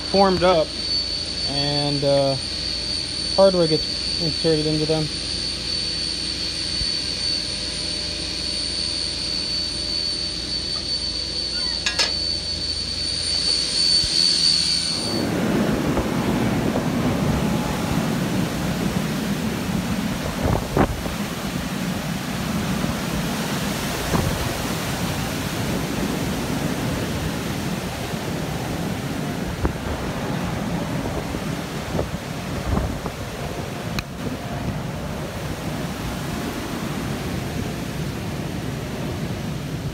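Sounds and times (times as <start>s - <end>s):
high-pitched machine whine: 0.0s - 39.9s
low hum: 0.0s - 39.9s
strong wind buffeting microphone: 13.9s - 39.9s.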